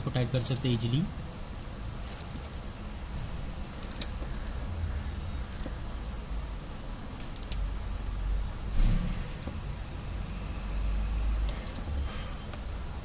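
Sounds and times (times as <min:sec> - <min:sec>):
wrench metallic clicks: 0:02.1 - 0:02.6, 0:03.8 - 0:04.2, 0:05.5 - 0:05.8, 0:07.2 - 0:07.6, 0:11.5 - 0:11.9.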